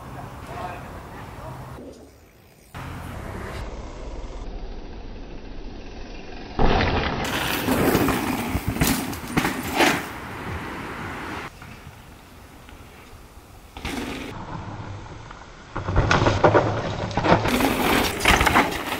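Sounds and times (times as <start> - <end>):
low outdoor rumble: 0.0 - 8.9
bike tyres crunching on dirt: 7.2 - 18.9.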